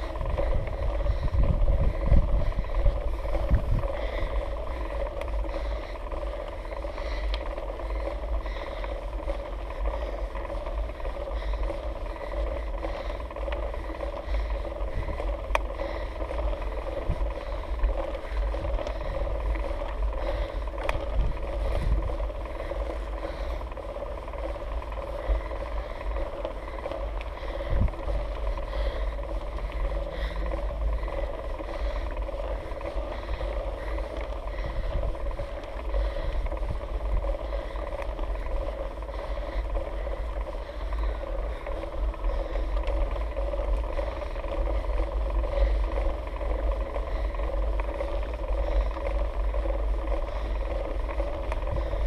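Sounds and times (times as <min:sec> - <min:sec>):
bike tyre rolling rumble: 0:00.0 - 0:52.0
faint hum: 0:00.0 - 0:52.0.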